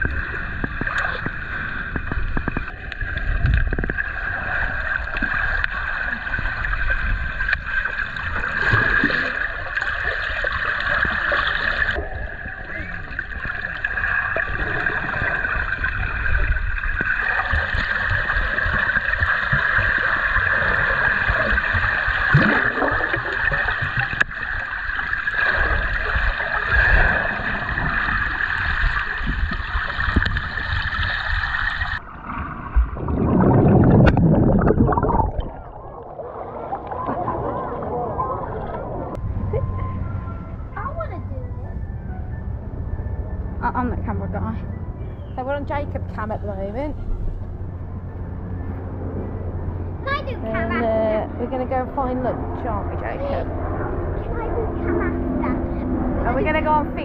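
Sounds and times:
water rush: 0.0 - 39.4
muffled water sloshing and gurgling: 0.0 - 57.0.

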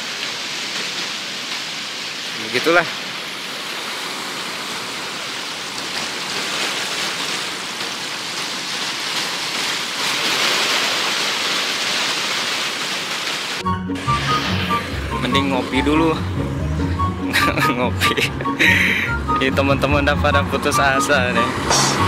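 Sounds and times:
small sea waves breaking: 0.0 - 13.6.

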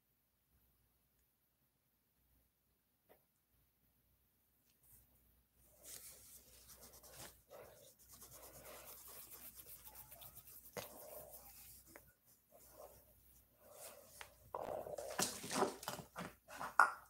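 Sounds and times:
crayon scratching on paper: 5.8 - 13.1.

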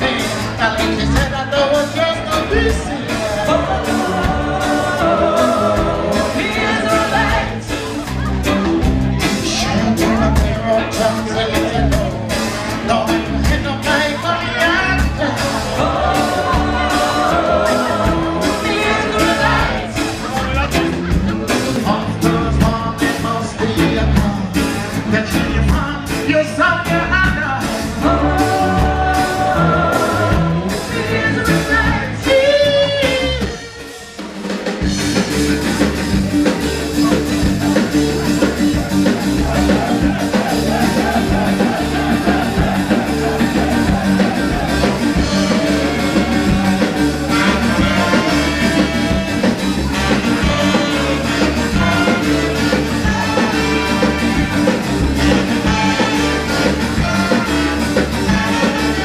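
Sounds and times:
person singing: 0.0 - 8.0, 12.9 - 20.2, 21.8 - 33.8
live ska band playing: 0.0 - 59.0.

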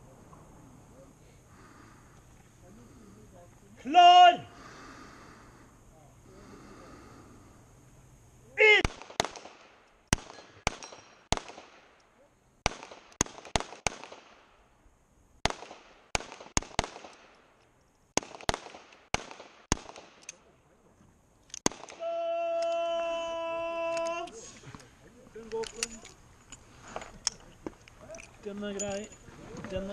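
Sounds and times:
person shouting a command: 3.8 - 4.5, 8.6 - 8.9, 22.0 - 24.5
sharp handgun shots: 8.8 - 12.0, 12.6 - 14.6, 15.4 - 17.4, 18.2 - 20.3, 21.6 - 22.0.

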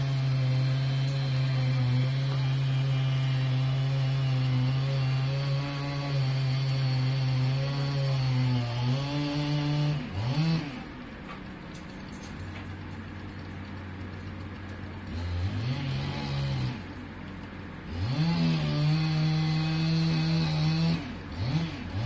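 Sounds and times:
chainsaw cutting tree trunk: 0.0 - 11.5, 15.0 - 17.0, 17.8 - 22.0.

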